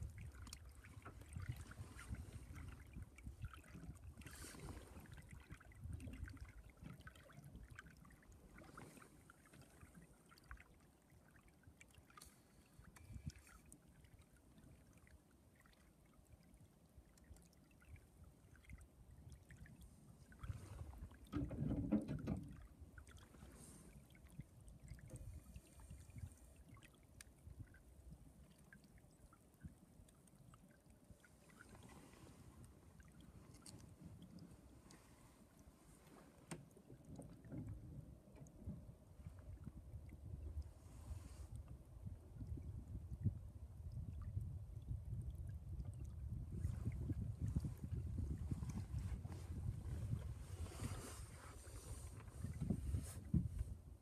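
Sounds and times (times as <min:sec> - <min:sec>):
little water splashes: 0:00.0 - 0:41.6
small waves lapping against boat hull: 0:00.0 - 0:54.0.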